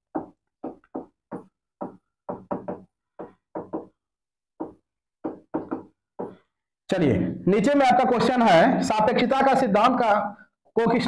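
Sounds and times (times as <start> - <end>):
marker writing on a whiteboard: 0.0 - 6.8.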